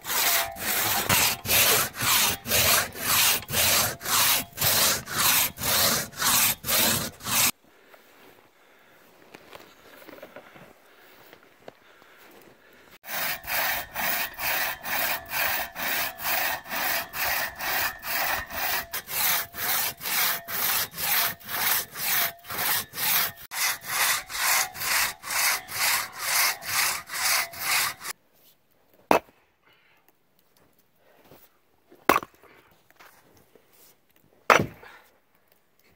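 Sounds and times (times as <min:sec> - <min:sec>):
crosscut saw rasping through log: 0:00.0 - 0:07.6, 0:13.0 - 0:28.2.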